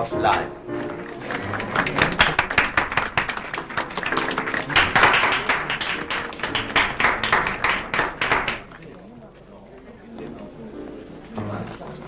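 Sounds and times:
background music: 0.0 - 12.0
audience applause: 1.0 - 9.0.

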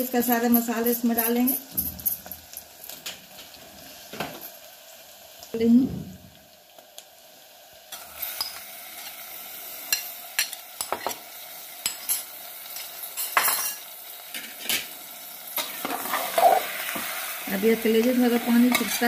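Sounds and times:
food sizzling in hot oil: 0.0 - 19.0
utensils scraping a pot: 15.6 - 17.3.

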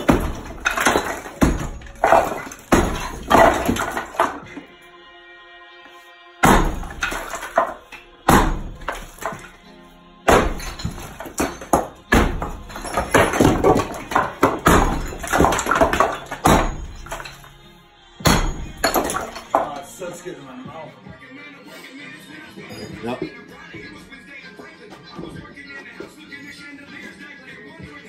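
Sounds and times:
sledgehammer hitting brick: 0.0 - 4.7, 6.4 - 9.6, 10.2 - 17.6, 18.2 - 19.9.

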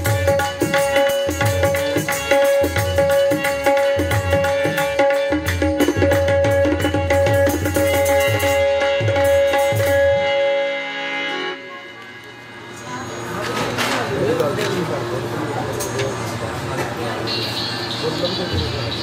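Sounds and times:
hand drums fast rhythm: 0.0 - 10.1
held melodic drone note: 0.0 - 15.2.

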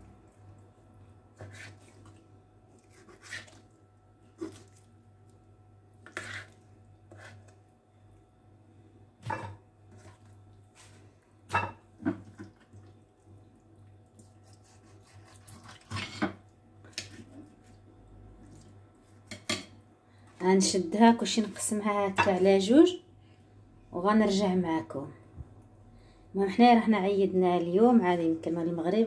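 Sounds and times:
low steady hum: 0.0 - 29.0
wet squishes of raw liver: 1.4 - 5.4.

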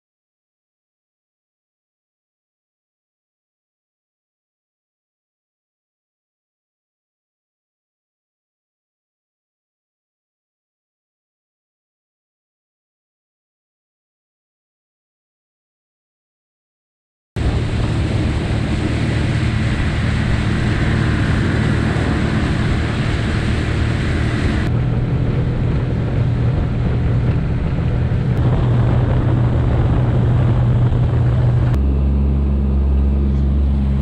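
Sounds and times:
motorboat engine drone: 17.4 - 34.0
rush of wind and water: 17.4 - 34.0.

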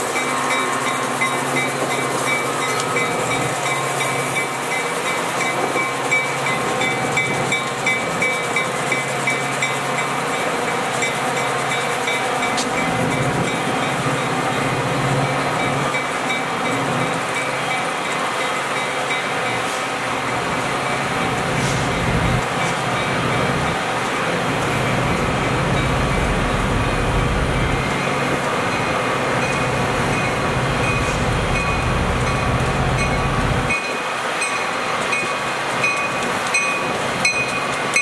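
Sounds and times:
locomotive engine drone: 0.0 - 38.0
wheels clicking over rail joints: 28.8 - 38.0.

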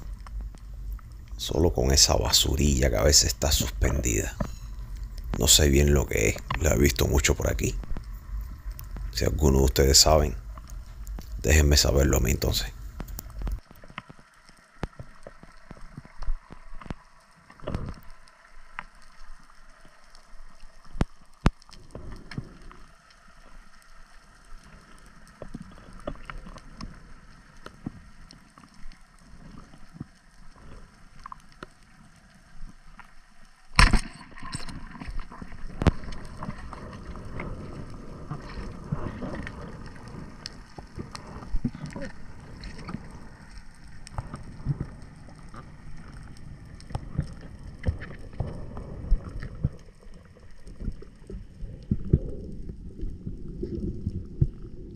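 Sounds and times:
underwater clicks and crackles: 0.0 - 54.9
rushing and sloshing water: 33.7 - 54.9.

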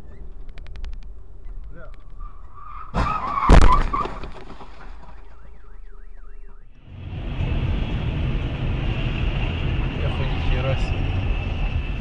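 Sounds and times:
car alarm wailing: 5.2 - 6.8.

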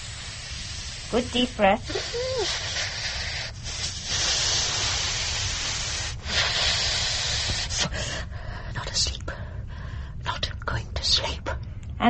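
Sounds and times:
hissing breaths through gas mask: 0.0 - 8.6.

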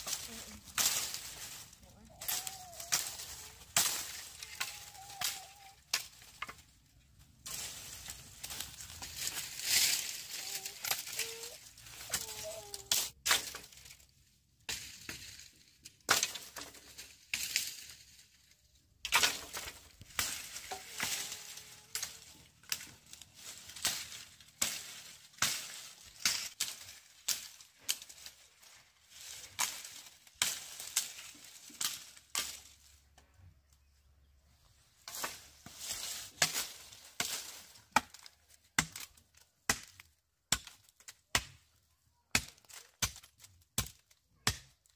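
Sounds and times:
crackle of stalk and dry leaf: 0.0 - 34.0, 35.0 - 40.2
blade chopping sugarcane: 19.1 - 28.3, 35.1 - 41.6.

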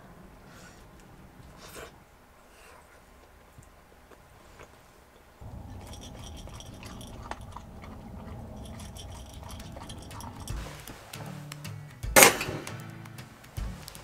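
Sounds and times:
steady low background noise: 0.0 - 14.0
dog crunching food: 3.6 - 11.1
food clicking against bowl: 5.5 - 12.4.

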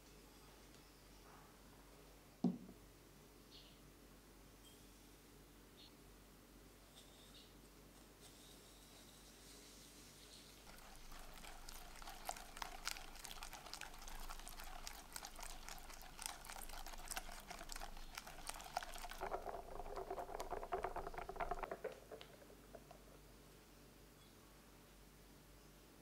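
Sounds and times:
wet sloshing of egg mixture: 10.6 - 23.1
whisk clicking against glass bowl: 10.7 - 22.4.

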